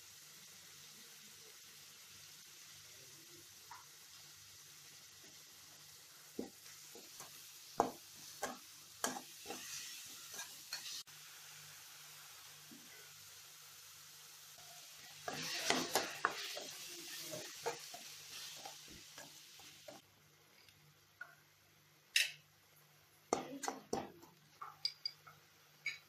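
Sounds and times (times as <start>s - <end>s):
paste sizzling in a metal pan: 0.0s - 21.5s
spatula scraping a pan: 6.4s - 11.1s, 14.6s - 20.0s.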